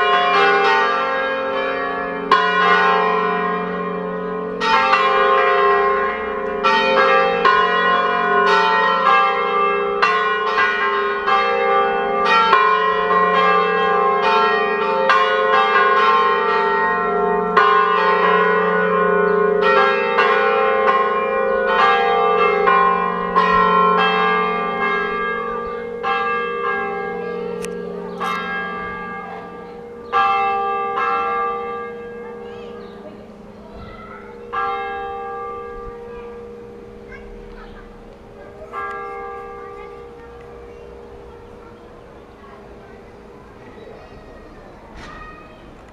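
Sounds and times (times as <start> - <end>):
church bells ringing: 0.0 - 45.9.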